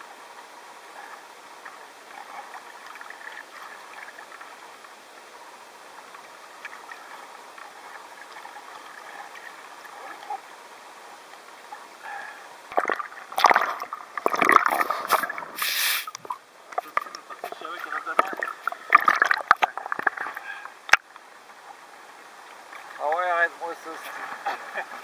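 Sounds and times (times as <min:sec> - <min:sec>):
water gurgling and lapping: 0:00.0 - 0:25.0
loud splashes and knocks: 0:12.7 - 0:15.6.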